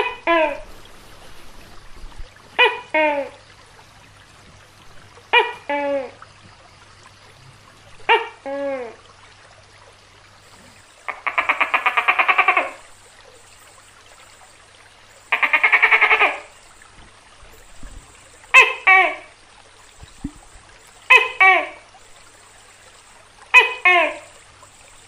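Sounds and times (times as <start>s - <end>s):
gecko calling: 10.9s - 16.8s, 17.6s - 20.2s.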